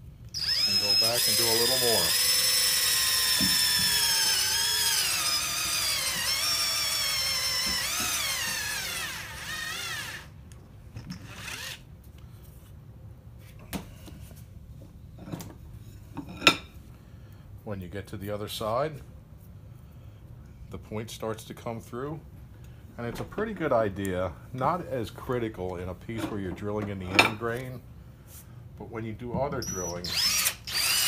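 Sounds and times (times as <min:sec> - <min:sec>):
cordless drill boring into wood: 0:00.4 - 0:10.3, 0:11.2 - 0:11.8, 0:29.6 - 0:31.0.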